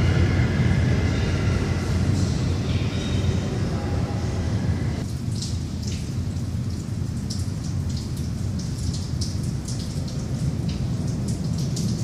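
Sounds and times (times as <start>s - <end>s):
low rumble: 0.0s - 5.1s.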